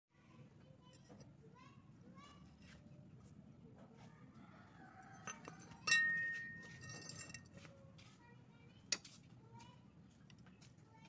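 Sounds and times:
steel angle iron clinking: 0:05.1 - 0:07.5.

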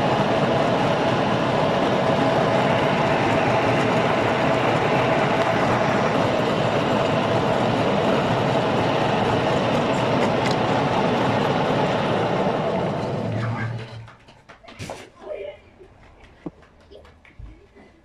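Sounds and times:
metal lathe running: 0:00.0 - 0:14.1.

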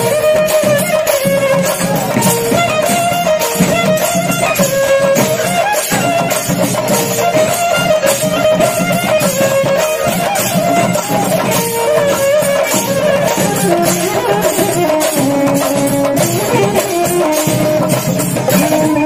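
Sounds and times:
double-reed pipe melody: 0:00.0 - 0:19.0
steady drumming: 0:00.0 - 0:19.0.

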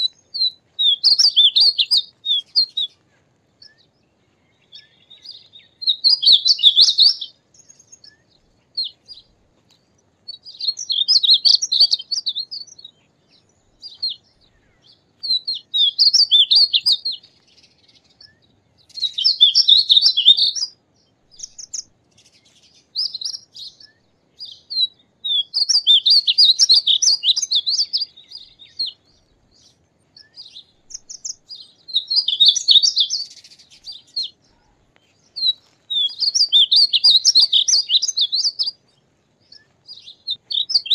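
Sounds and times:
bird singing warbling phrases: 0:00.0 - 0:40.9.

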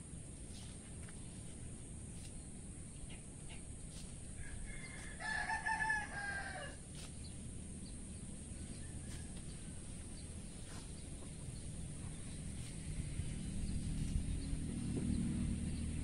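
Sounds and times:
rooster crowing: 0:04.4 - 0:06.8, 0:08.7 - 0:09.8.

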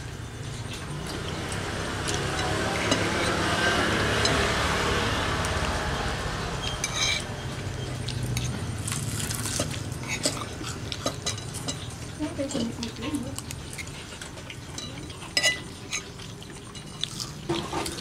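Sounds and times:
engine drone: 0:00.0 - 0:10.9
cutlery clinking on plates: 0:06.6 - 0:08.6, 0:09.5 - 0:13.0, 0:13.7 - 0:18.0.

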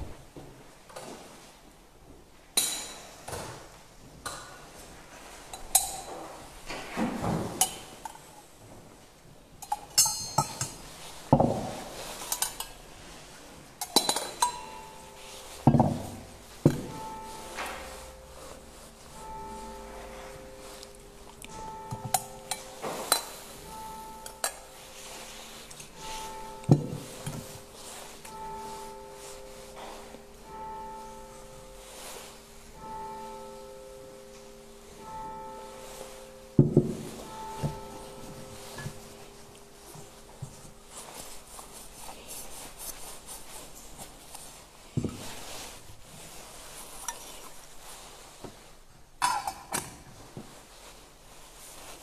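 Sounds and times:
soft rustling: 0:00.0 - 0:49.2, 0:49.9 - 0:52.0
metal and glass vessels clinking: 0:05.5 - 0:06.2, 0:09.6 - 0:12.9, 0:13.8 - 0:18.2, 0:19.1 - 0:30.2, 0:49.2 - 0:50.0
soft music with held notes: 0:09.5 - 0:48.8.

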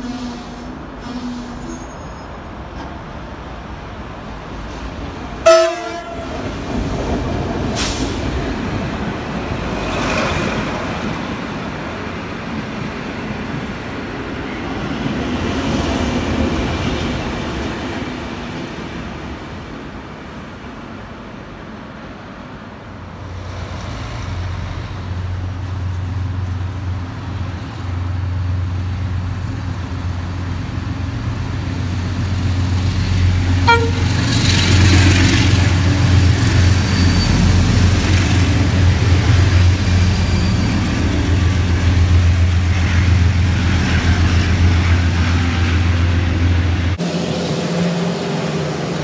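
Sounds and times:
short train horn toot: 0:00.0 - 0:02.2, 0:05.4 - 0:06.4, 0:33.6 - 0:34.4
diesel locomotive engine drone: 0:00.0 - 0:49.0.

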